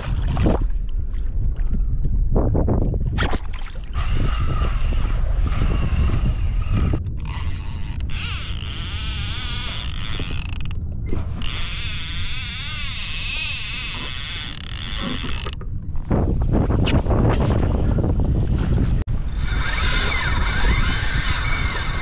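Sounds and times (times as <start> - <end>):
fishing reel drag screaming: 4.0 - 10.8, 11.4 - 15.6, 19.2 - 22.0.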